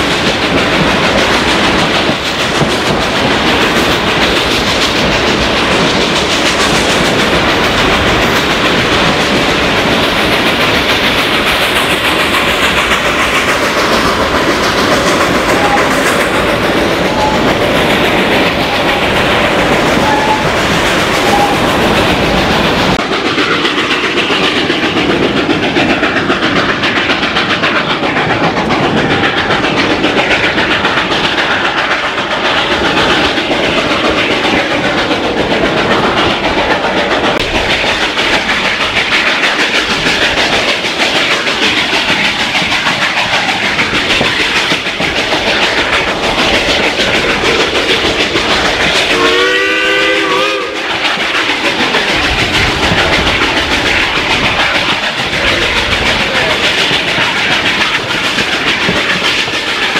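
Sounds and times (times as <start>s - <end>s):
train wheels clattering on rails: 0.0s - 59.9s
steam locomotive whistle: 15.5s - 16.2s, 17.0s - 17.7s, 19.9s - 21.9s, 49.1s - 51.0s.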